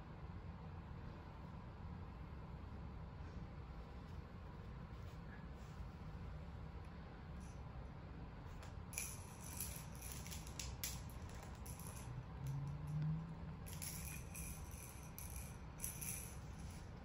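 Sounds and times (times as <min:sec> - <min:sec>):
plastic toys rattling and jingling: 0:09.0 - 0:13.0, 0:13.6 - 0:17.0.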